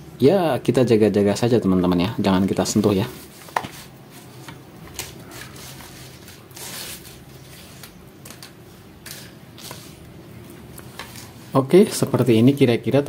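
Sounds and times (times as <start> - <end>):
faint taps and rustles: 3.4 - 5.1.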